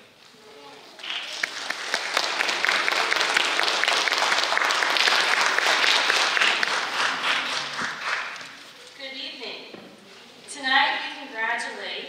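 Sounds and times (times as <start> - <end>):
audience applauding: 1.0 - 8.7.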